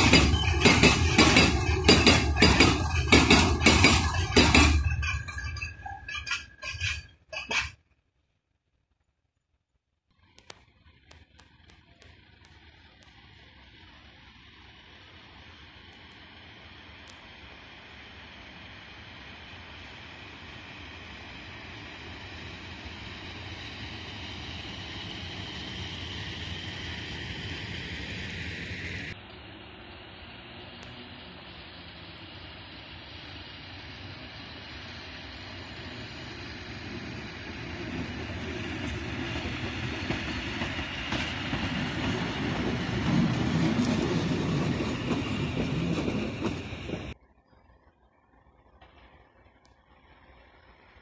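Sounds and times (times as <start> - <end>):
locomotive motor noise: 0.0 - 7.8, 10.2 - 51.0
locomotive wheels clacking over rails: 0.0 - 7.8, 37.0 - 47.2
locomotive wheels rumbling on rail: 0.0 - 7.8, 10.2 - 51.0
high hiss: 12.9 - 47.1.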